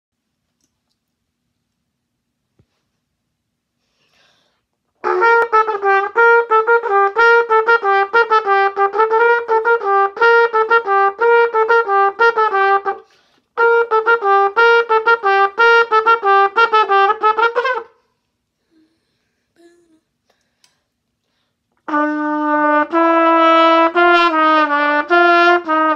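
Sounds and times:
brassy instrument melody: 5.0 - 18.1, 21.8 - 25.9.

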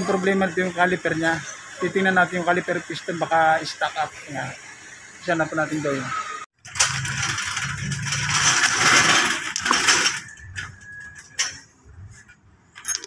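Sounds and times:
metal clinking and scraping: 6.6 - 13.0.

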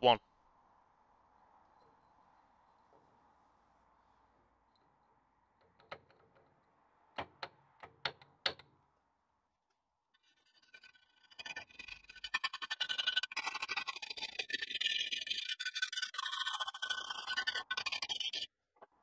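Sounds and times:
metal clicks and knocks: 5.6 - 8.7
file rasping on metal: 10.2 - 18.5.

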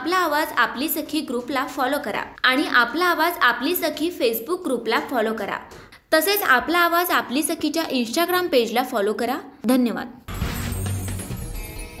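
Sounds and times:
deep hit: 10.3 - 11.6
news outro music jingle: 10.3 - 12.0.

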